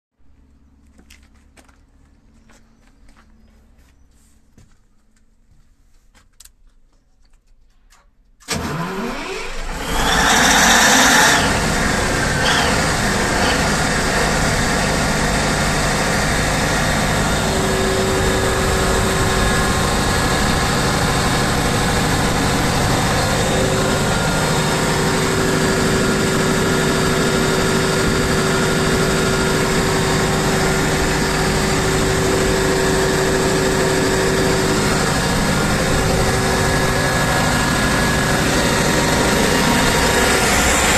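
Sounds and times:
diesel generator engine running: 0:00.3 - 0:05.4, 0:08.4 - 0:40.9
steady whine: 0:09.5 - 0:40.9.

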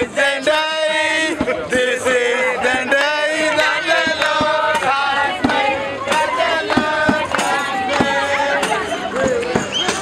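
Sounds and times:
men singing a chant: 0:00.0 - 0:09.5
drum hits: 0:04.0 - 0:10.0.

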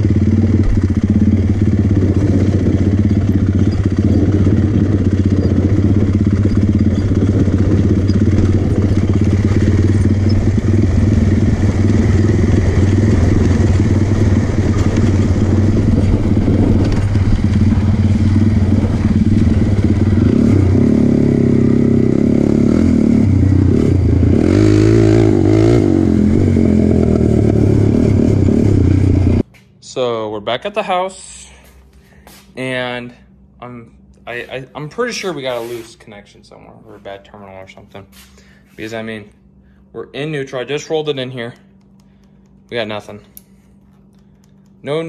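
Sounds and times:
quad bike engine running: 0:00.0 - 0:29.5.

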